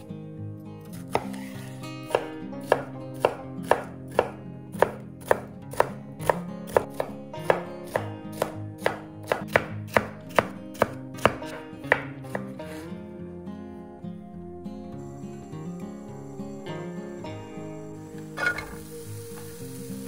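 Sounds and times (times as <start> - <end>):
knife chopping on a cutting board: 0.9 - 12.8.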